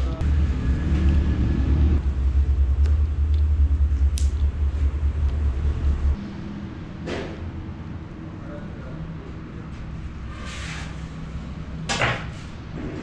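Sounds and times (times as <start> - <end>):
motor pulsing hum: 0.2 - 6.7.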